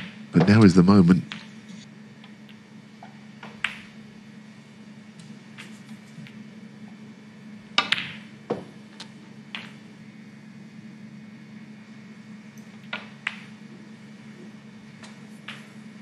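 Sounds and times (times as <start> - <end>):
low background hum: 0.0 - 16.0
snooker balls clicking: 2.2 - 4.0, 7.7 - 9.9, 12.6 - 13.8, 14.4 - 15.8.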